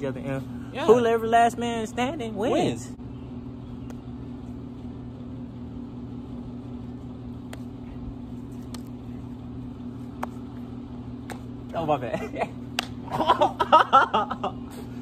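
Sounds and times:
low mechanical hum: 0:00.0 - 0:15.0
sharp slap to the face: 0:12.7 - 0:13.0.

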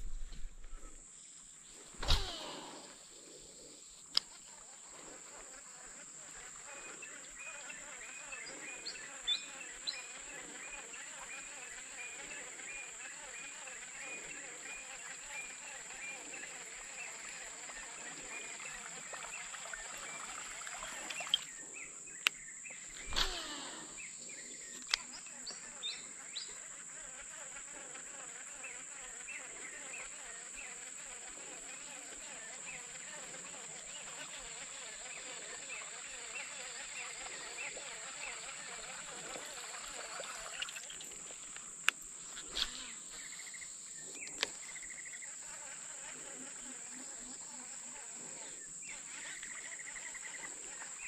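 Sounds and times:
faint rustle: 0:00.0 - 0:07.3
insects droning: 0:00.0 - 0:51.0
brief rustle: 0:01.9 - 0:02.9, 0:22.9 - 0:23.7
brief swish: 0:02.0 - 0:02.8.

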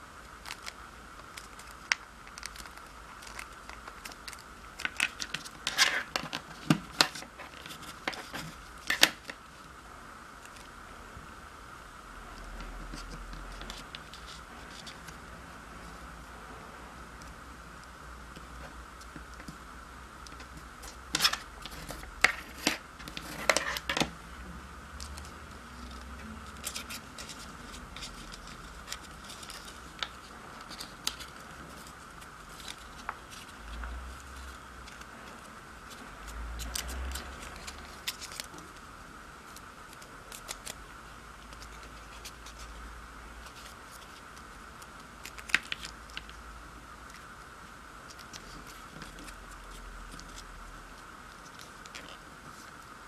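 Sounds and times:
paper being folded and creased: 0:25.0 - 0:38.8.

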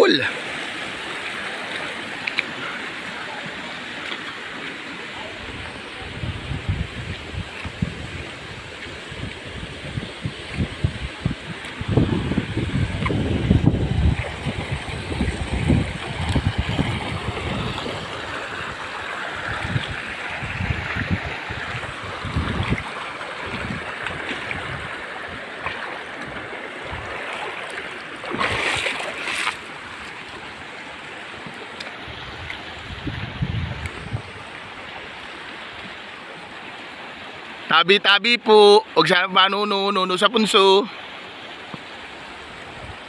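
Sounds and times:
river water running over rocks: 0:00.0 - 0:43.0
wind gusting on microphone: 0:05.3 - 0:25.6, 0:26.2 - 0:27.2, 0:32.0 - 0:35.0.

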